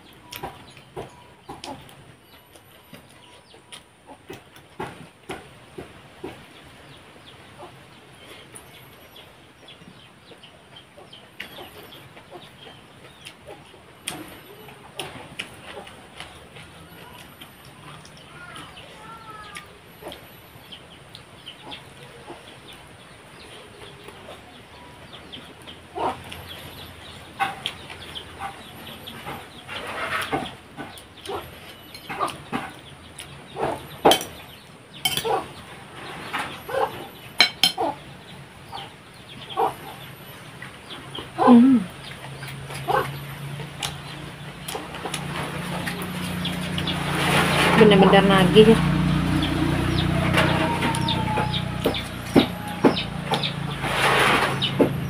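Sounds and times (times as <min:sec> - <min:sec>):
chickens clucking: 0:00.0 - 0:55.0.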